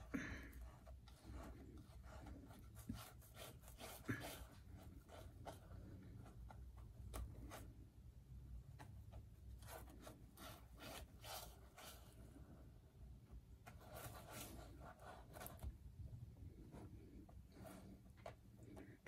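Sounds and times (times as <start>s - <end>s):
brush rubbing paint on canvas: 0.0s - 7.8s, 9.5s - 12.5s, 13.7s - 15.7s.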